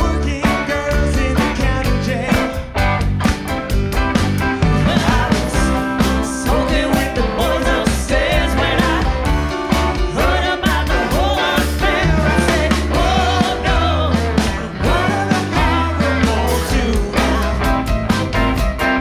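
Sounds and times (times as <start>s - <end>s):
drums: 0.0s - 19.0s
electric bass: 0.0s - 19.0s
electric guitar: 0.0s - 19.0s
woman singing lead vocal: 4.7s - 17.9s.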